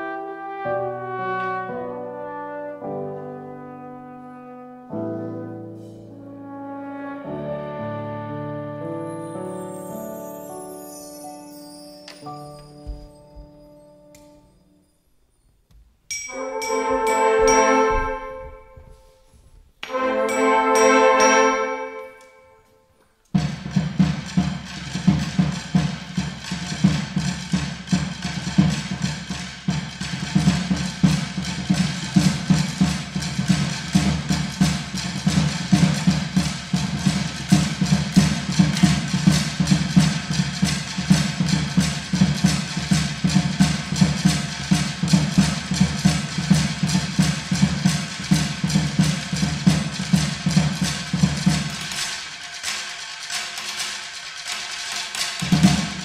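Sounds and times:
drum kit: 16.1 - 19.3, 23.3 - 56.0.

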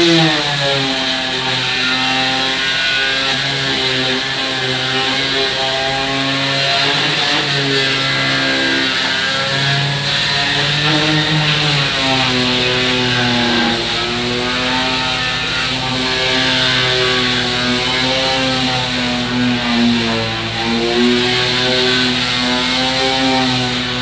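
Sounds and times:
orbital sander on wood: 0.0 - 24.0.

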